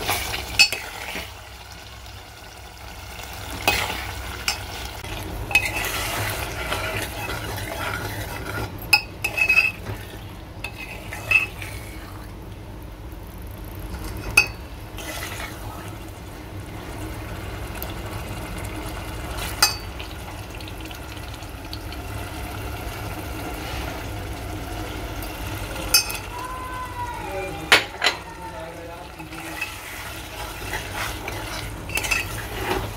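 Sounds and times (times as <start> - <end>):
spoon scraping in pot: 0.0 - 1.4, 3.5 - 12.2, 29.2 - 32.9
low sizzle: 0.0 - 32.9
spoon clinking against metal pot: 8.8 - 9.8, 19.6 - 19.9, 25.9 - 26.3.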